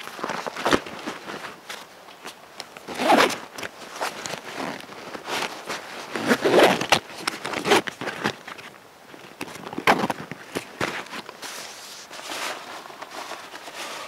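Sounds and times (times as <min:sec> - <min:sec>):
rucksack fabric rustling: 0:00.0 - 0:14.0
straps pulled tight: 0:02.8 - 0:08.7.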